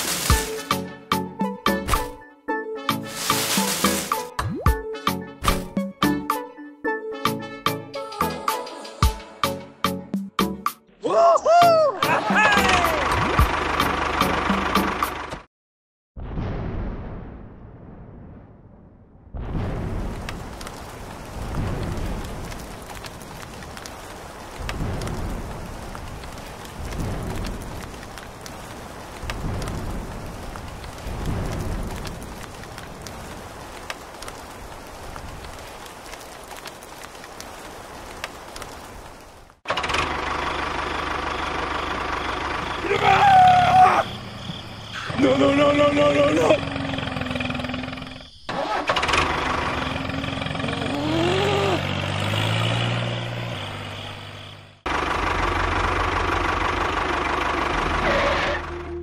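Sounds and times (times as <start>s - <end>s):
rain pattering: 0.0s - 1.3s, 2.9s - 4.8s, 12.0s - 15.2s, 19.6s - 48.2s, 48.8s - 58.3s
tractor engine running: 12.0s - 15.5s, 39.7s - 59.0s
engine with fast low throb: 12.9s - 15.4s, 54.9s - 59.0s.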